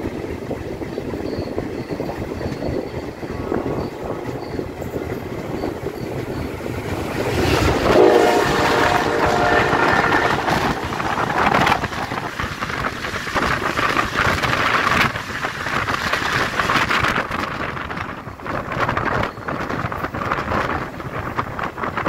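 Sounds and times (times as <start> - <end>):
train wheels clattering: 0.0 - 22.0
wind noise of passing train: 0.0 - 22.0
train horn: 7.5 - 10.9.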